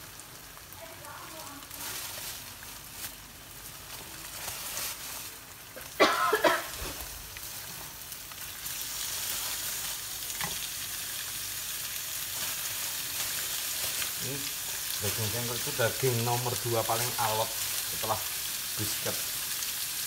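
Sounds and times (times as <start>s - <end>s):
meat sizzling in a wok: 0.0s - 20.0s.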